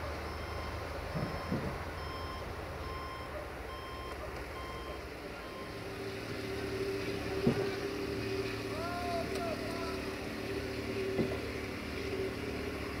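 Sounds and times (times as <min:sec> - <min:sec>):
electronic warning beeps: 0:00.2 - 0:05.8.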